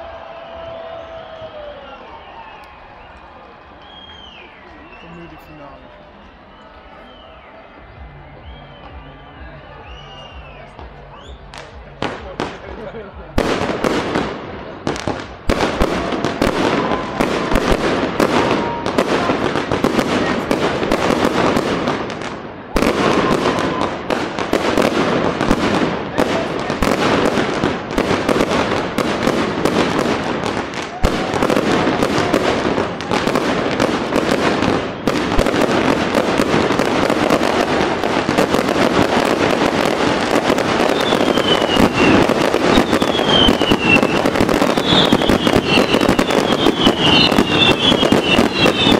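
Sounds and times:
falling firework whistles: 0.2 - 7.7, 40.4 - 48.9
fireworks crackling and banging: 8.8 - 48.9.

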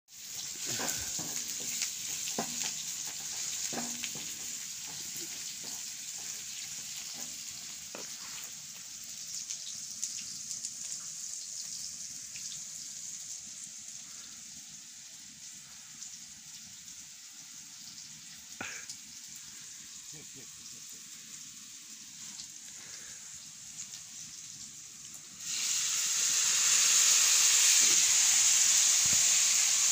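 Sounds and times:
vegetables sizzling in oil: 0.1 - 29.9
spatula scraping and tapping pan: 0.4 - 8.5.

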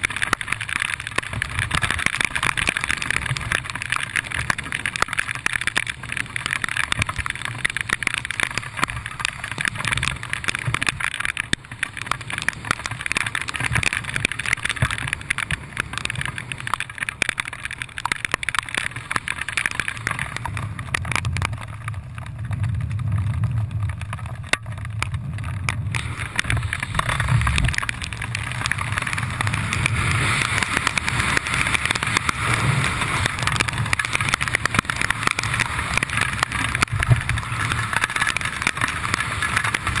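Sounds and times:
low rumble: 20.5 - 38.1.

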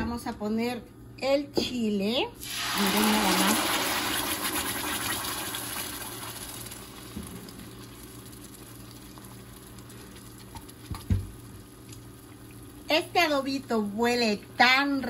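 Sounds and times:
sauce sizzling in hot oil: 2.4 - 13.0.

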